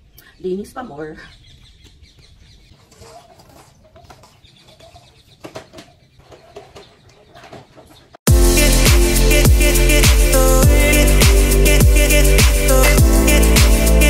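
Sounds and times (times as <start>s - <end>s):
objects clattering: 2.7s - 8.2s
music with heavy beat: 8.3s - 14.0s.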